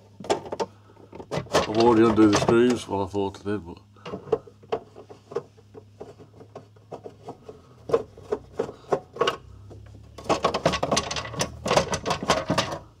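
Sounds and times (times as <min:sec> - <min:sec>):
plastic cover scraping and rattling: 0:00.2 - 0:03.0, 0:04.0 - 0:13.0.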